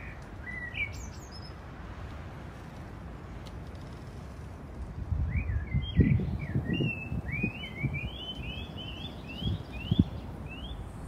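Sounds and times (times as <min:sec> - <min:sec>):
songbird whistling: 0:00.0 - 0:01.6, 0:05.2 - 0:10.9.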